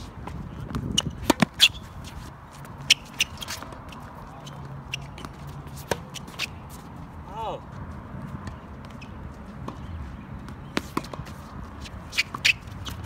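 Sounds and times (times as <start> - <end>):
tennis balls bouncing on court: 0.0 - 7.0, 7.9 - 13.0
tennis balls struck by rackets: 0.2 - 1.8, 4.6 - 6.6, 8.4 - 13.0.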